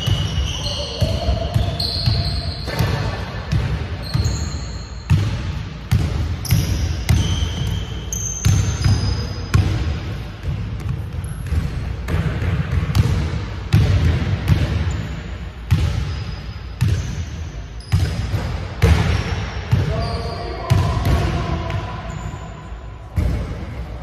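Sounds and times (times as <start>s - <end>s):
sneaker squeaks: 0.0s - 3.3s, 3.9s - 5.6s, 6.4s - 10.0s, 14.8s - 23.3s.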